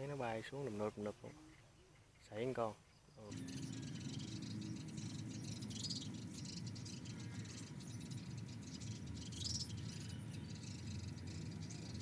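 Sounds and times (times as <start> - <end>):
insects chirring: 2.2 - 12.0
low rumble: 3.3 - 11.7.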